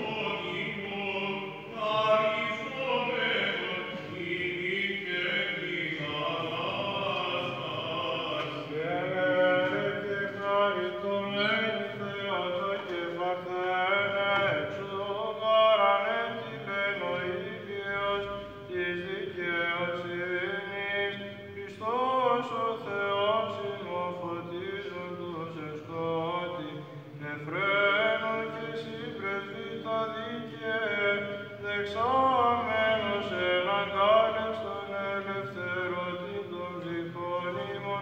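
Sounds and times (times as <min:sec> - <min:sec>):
men chanting a melody: 0:00.0 - 0:38.0.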